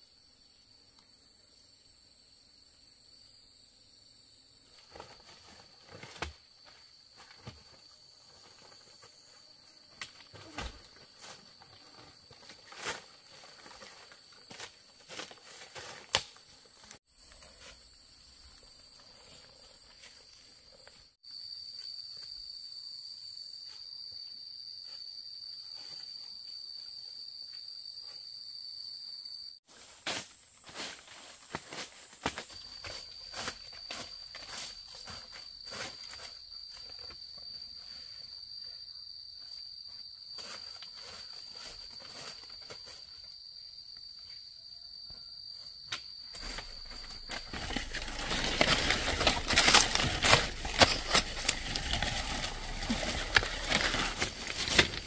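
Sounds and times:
insects shrilling: 0:46.4 - 0:55.0.

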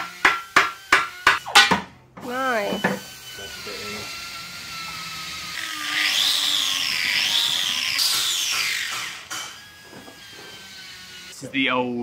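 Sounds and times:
angle grinder grinding: 0:02.2 - 0:11.6.

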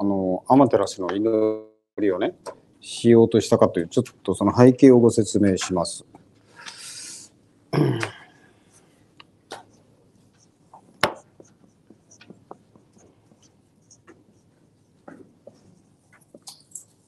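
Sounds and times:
marker scratching on whiteboard: 0:09.6 - 0:17.0.

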